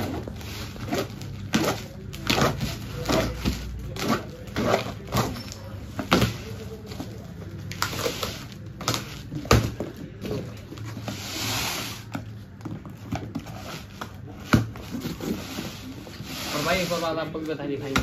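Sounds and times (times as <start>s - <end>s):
cardboard and tape ripping: 0.0s - 12.2s.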